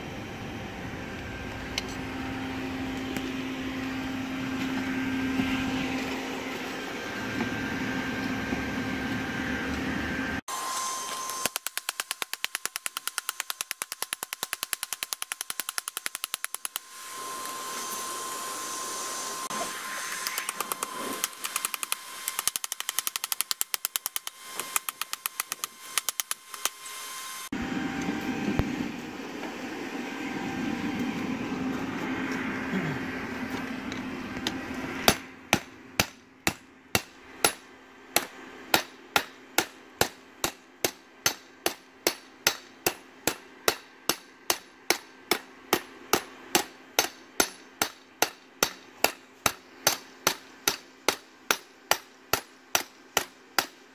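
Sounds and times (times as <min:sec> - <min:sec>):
forge blower hum: 0:00.0 - 0:53.9
hammer striking steel on anvil: 0:35.0 - 0:53.8.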